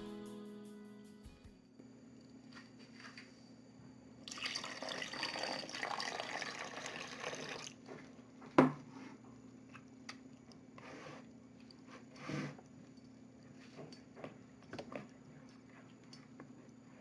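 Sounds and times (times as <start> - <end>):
water pouring into a bowl: 4.3 - 7.8.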